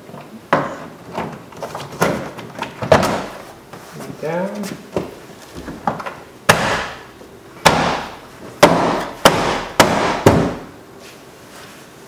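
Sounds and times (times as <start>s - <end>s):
hand smacking door panel: 5.6s - 7.0s, 7.6s - 10.7s.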